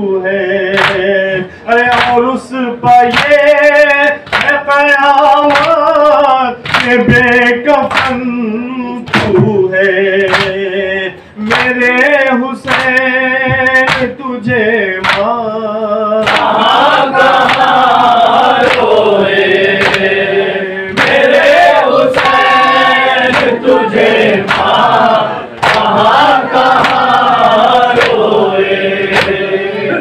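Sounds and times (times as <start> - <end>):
sharp slaps: 0.7 - 1.1, 1.9 - 2.2, 2.9 - 3.5, 4.2 - 4.6, 5.4 - 5.8, 6.6 - 8.2, 9.0 - 9.6, 10.2 - 10.6, 11.5 - 11.8, 12.6 - 15.4, 16.2 - 16.6, 17.3 - 17.8, 18.5 - 19.0, 19.7 - 20.1, 20.9 - 21.4, 22.1 - 23.6, 24.4 - 24.9, 25.5 - 27.3, 27.9 - 28.3, 29.1 - 29.4
group of voices chanting: 16.2 - 30.0.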